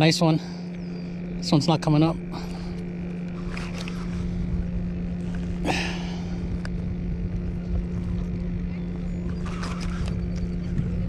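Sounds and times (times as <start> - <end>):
low electric hum: 0.0 - 11.0
wind buffeting microphone: 2.2 - 11.0.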